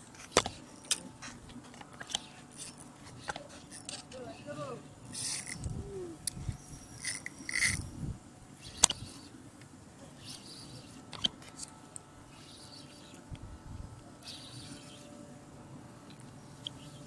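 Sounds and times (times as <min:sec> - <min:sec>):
fishing rod handling scrapes: 0:00.2 - 0:04.2, 0:05.1 - 0:05.7, 0:06.8 - 0:07.9
fishing reel click: 0:05.1 - 0:05.7, 0:06.9 - 0:07.8.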